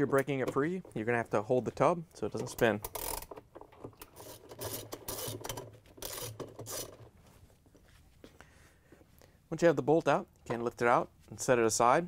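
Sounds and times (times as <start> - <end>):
socket ratchet clicking: 2.8 - 7.0.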